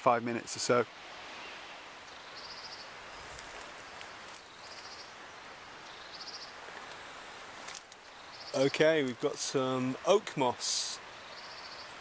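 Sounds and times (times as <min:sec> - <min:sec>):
steady soft hiss: 0:00.0 - 0:12.0
small bird chirping: 0:02.1 - 0:05.2, 0:05.8 - 0:07.4, 0:08.0 - 0:08.7, 0:11.2 - 0:12.0.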